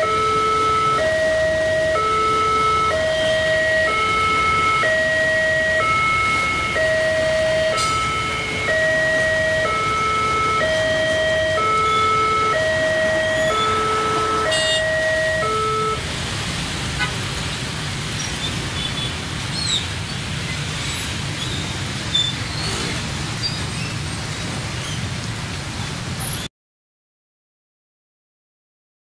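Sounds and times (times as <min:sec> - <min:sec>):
level crossing two-tone alarm: 0:00.0 - 0:16.0
traffic noise: 0:00.0 - 0:26.5
motorbike engines running: 0:18.6 - 0:25.1.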